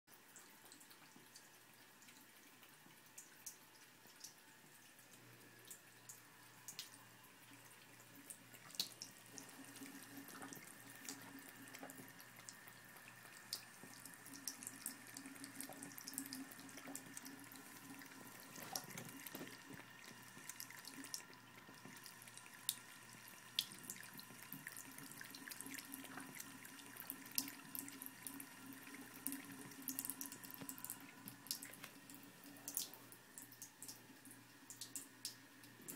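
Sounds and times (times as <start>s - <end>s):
cat lapping water: 7.6s - 34.0s
tap water running into sink: 8.2s - 35.9s.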